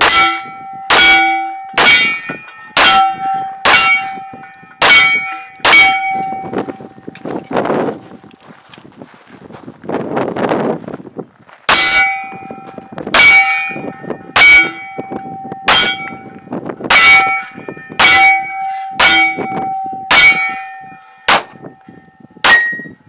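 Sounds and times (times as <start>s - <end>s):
steel plate target clang: 0.0s - 7.4s, 11.7s - 21.8s, 22.4s - 23.0s.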